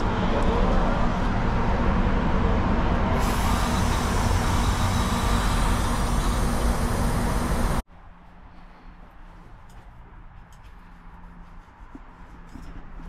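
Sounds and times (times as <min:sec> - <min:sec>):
gas hissing through hose: 0:03.2 - 0:07.8.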